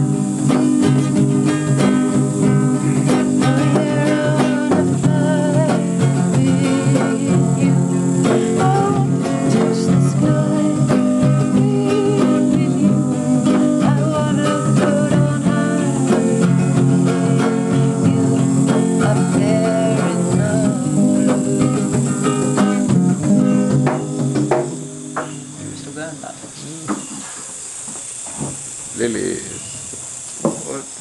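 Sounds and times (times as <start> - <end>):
woman singing: 0.0 - 22.7
acoustic guitar strummed and picked: 0.0 - 28.8.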